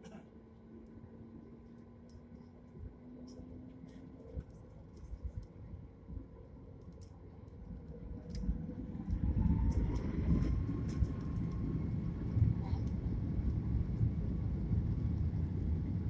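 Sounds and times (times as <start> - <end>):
jet engine whine: 0.0 - 16.0
jet engines rumbling: 7.6 - 16.0.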